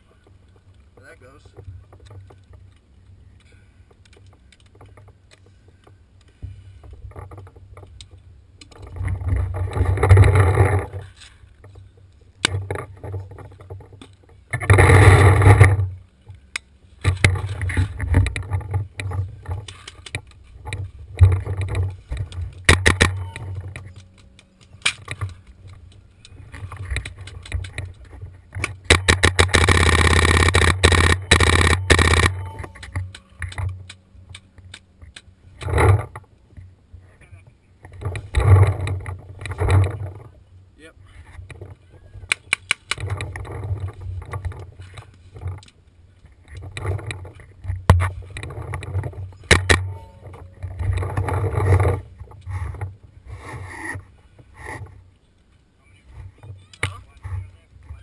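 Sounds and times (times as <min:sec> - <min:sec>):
paintball markers firing: 0:22.6 - 0:25.4, 0:28.6 - 0:35.7.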